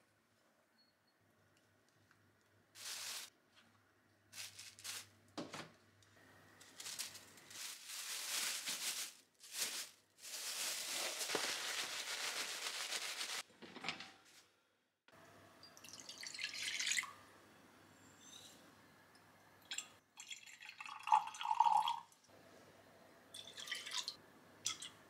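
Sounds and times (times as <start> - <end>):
plastic bag crinkling: 4.4 - 5.1, 6.6 - 13.4.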